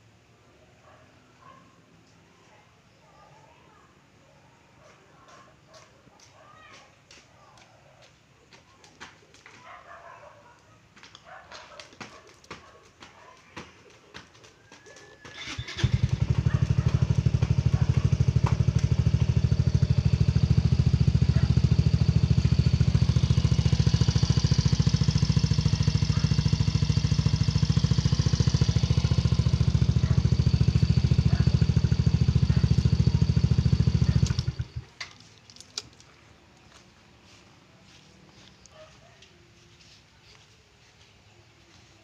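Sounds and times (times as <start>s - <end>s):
scooter engine idling: 15.3s - 35.2s.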